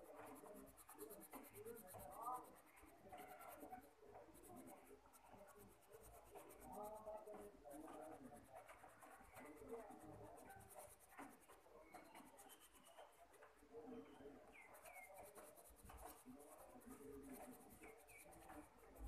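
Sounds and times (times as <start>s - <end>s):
pencil scratching on paper: 0.0s - 19.0s.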